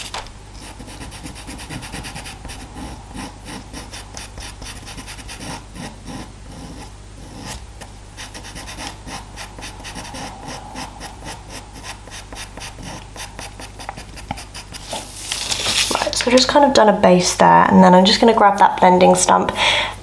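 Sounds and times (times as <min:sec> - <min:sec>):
pastel pencil scratching on card: 0:00.6 - 0:07.6, 0:08.2 - 0:15.0.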